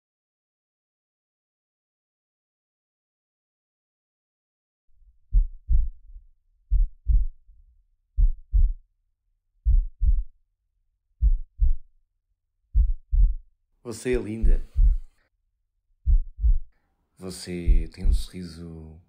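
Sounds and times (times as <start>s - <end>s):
heartbeat thumps: 5.2s - 7.4s, 8.2s - 8.8s, 9.6s - 10.3s, 11.2s - 11.9s, 12.7s - 13.5s, 14.1s - 15.1s, 16.0s - 16.7s, 17.6s - 18.4s.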